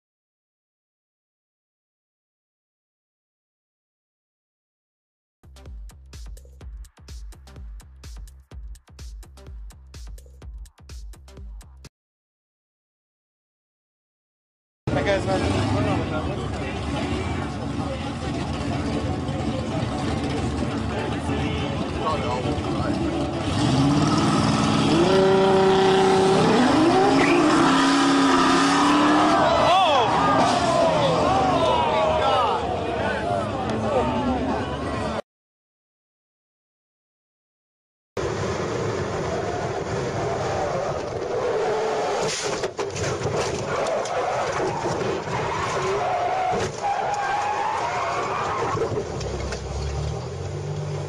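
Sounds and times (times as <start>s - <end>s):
car engines revving hard: 14.9s - 35.2s
road and wind noise: 14.9s - 35.2s, 38.2s - 51.0s.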